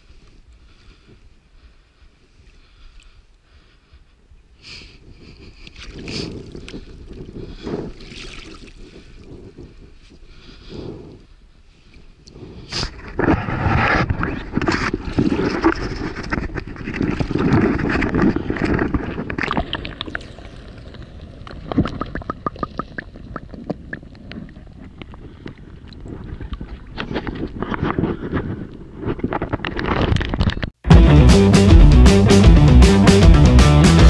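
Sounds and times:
water sloshing and splashing: 0:07.9 - 0:09.3, 0:13.0 - 0:27.7
muffled underwater clicks: 0:12.2 - 0:27.9.

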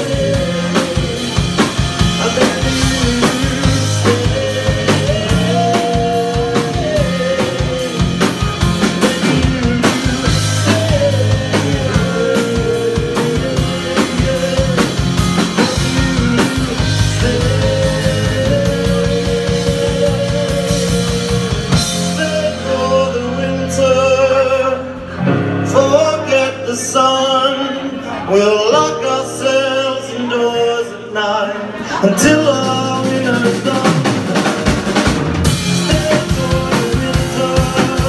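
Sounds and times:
drum kit beat: 0:00.0 - 0:23.9, 0:32.2 - 0:38.0
bass guitar: 0:00.0 - 0:38.0
electric guitar: 0:00.0 - 0:38.0
keyboard: 0:00.0 - 0:38.0.

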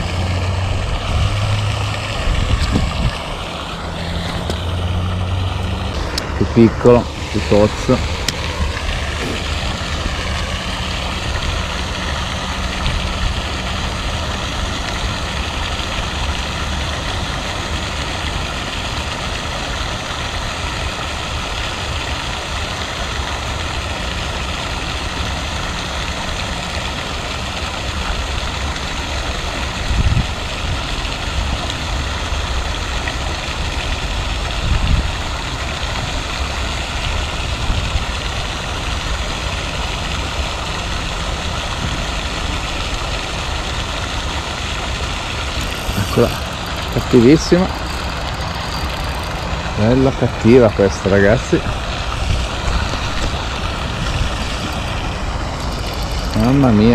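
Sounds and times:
wind rumbling on microphone: 0:00.0 - 0:17.6, 0:29.7 - 0:56.9
fountain spraying water: 0:00.0 - 0:56.9.

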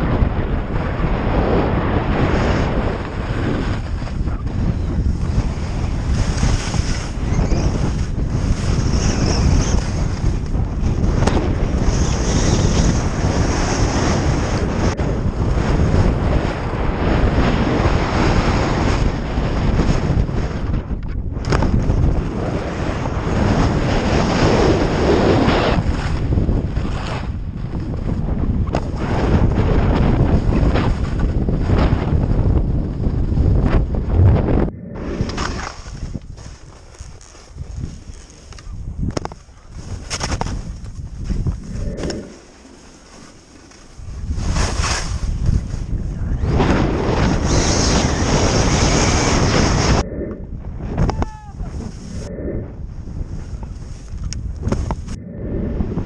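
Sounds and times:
wind buffeting microphone: 0:00.0 - 0:56.0
skis sliding through snow: 0:03.4 - 0:10.4, 0:35.4 - 0:38.5, 0:39.4 - 0:50.0.

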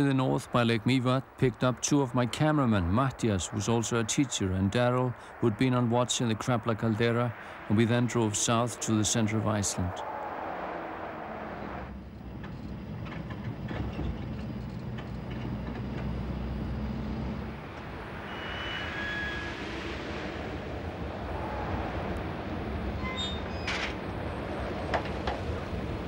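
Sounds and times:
vehicle body rattling: 0:12.0 - 0:16.2
short high squeaks: 0:18.2 - 0:19.7, 0:23.0 - 0:24.0.

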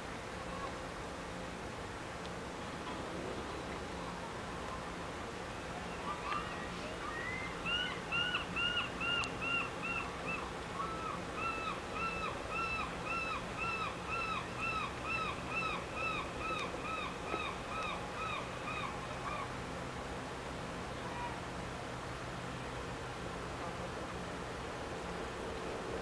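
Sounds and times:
bird calling: 0:05.8 - 0:19.5.

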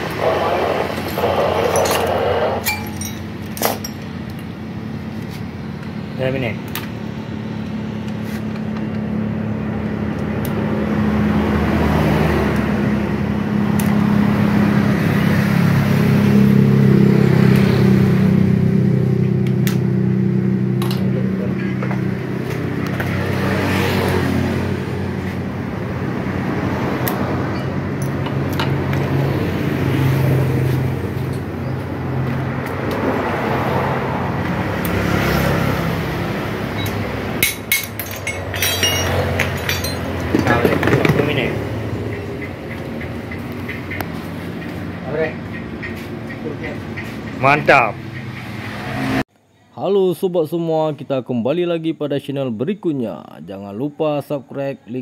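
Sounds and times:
loud motor drone: 0:00.0 - 0:02.8
metal clinks of hand tools: 0:01.0 - 0:04.1, 0:36.8 - 0:40.7.

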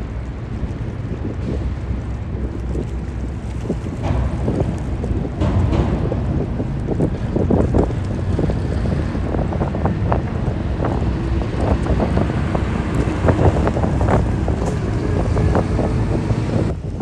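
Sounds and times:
truck diesel engine passing: 0:00.0 - 0:17.0
wind buffeting microphone: 0:00.0 - 0:17.0.

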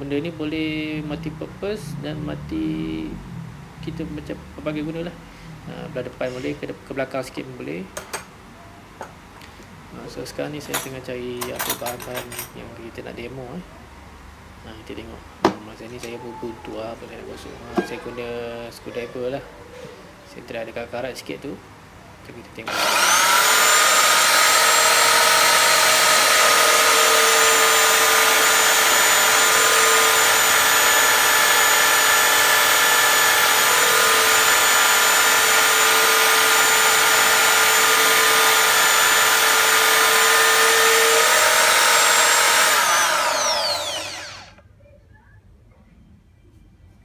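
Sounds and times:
electric drill whining: 0:22.7 - 0:44.6.

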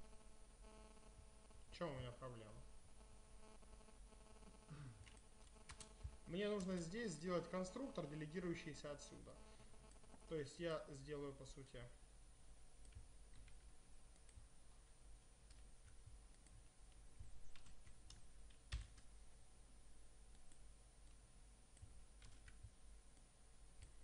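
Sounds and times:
keyboard typing clicks: 0:05.0 - 0:06.9, 0:12.8 - 0:14.5, 0:15.5 - 0:19.1, 0:20.3 - 0:22.7.

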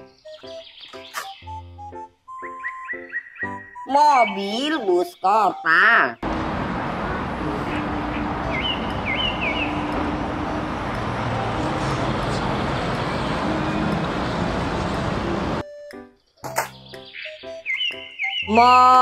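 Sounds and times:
bus driving past: 0:06.2 - 0:15.6
road and traffic noise: 0:06.2 - 0:15.7.

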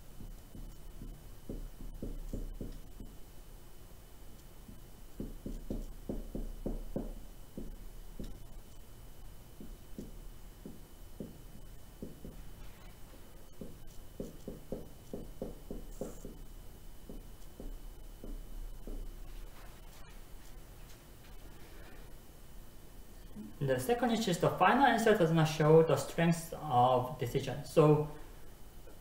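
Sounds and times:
marker writing on whiteboard: 0:00.2 - 0:03.2, 0:04.6 - 0:08.9, 0:09.6 - 0:20.6.

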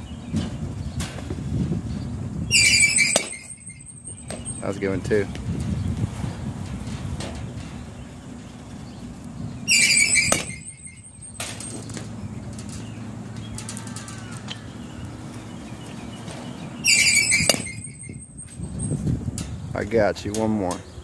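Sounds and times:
pitching machine high squeal: 0:02.5 - 0:04.8, 0:09.7 - 0:11.4, 0:16.8 - 0:19.0.

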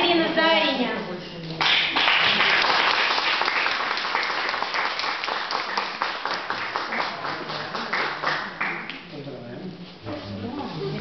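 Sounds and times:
audience applauding: 0:01.6 - 0:09.0.

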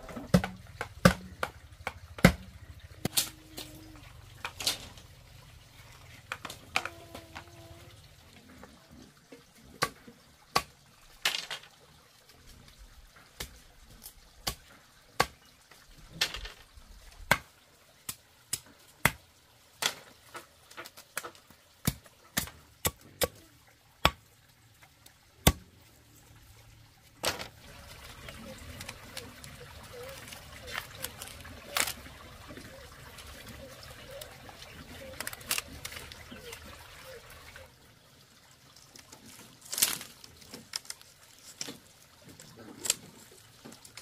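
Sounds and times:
machete chopping bamboo on wood: 0:00.2 - 0:03.3, 0:17.3 - 0:17.5, 0:21.2 - 0:23.4, 0:24.0 - 0:24.2, 0:25.4 - 0:25.7.

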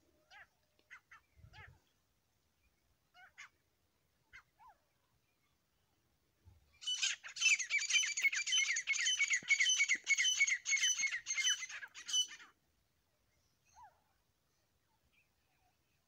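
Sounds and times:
bird giving scratchy calls: 0:06.8 - 0:12.5.

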